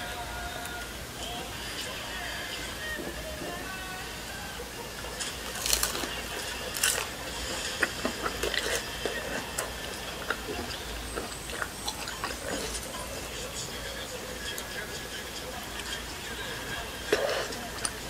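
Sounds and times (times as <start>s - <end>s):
chewing with mouth clicks: 5.0s - 18.0s
crunchy bites: 5.2s - 13.0s.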